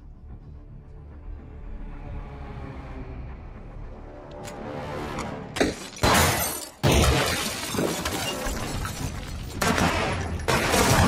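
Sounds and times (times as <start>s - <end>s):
debris shattering: 5.6s - 11.0s.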